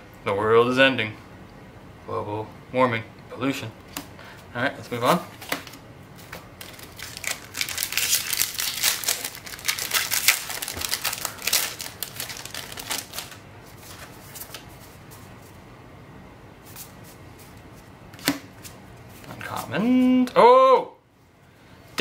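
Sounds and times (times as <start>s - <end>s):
cards being handled: 5.4s - 15.0s
plastic wrapper crinkling and tearing: 6.6s - 13.4s.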